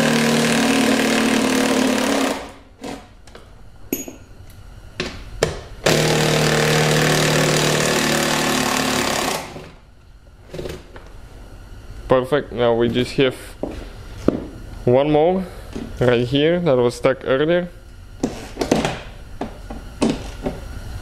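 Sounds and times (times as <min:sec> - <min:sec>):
power tool on stuck bolts: 0:00.0 - 0:03.1, 0:05.8 - 0:09.8.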